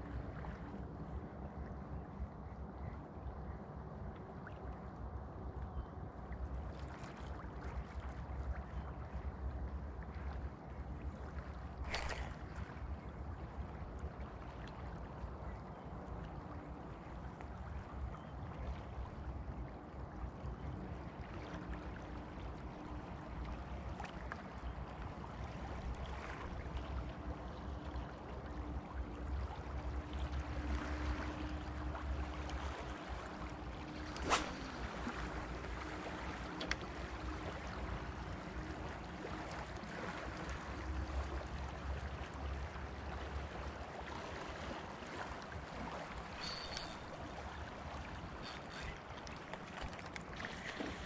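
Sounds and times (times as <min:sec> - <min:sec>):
flowing river water: 0:00.0 - 0:51.0
high-pitched squeaks: 0:46.4 - 0:47.2.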